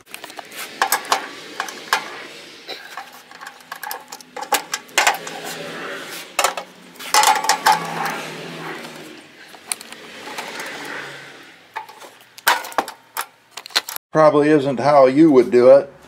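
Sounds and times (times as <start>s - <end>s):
wrench clicking on metal bolts: 2.9s - 5.5s.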